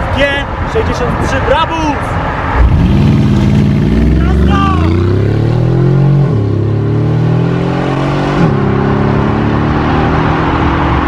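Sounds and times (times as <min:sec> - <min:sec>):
car engine accelerating hard: 0:02.6 - 0:11.0.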